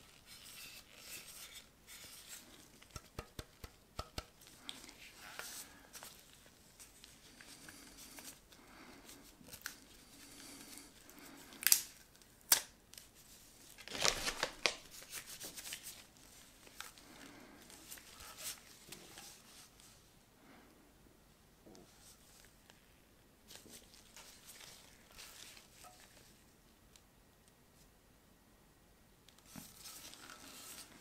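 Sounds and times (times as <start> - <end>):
rustling: 13.0 - 20.2, 23.5 - 26.5, 29.4 - 31.0.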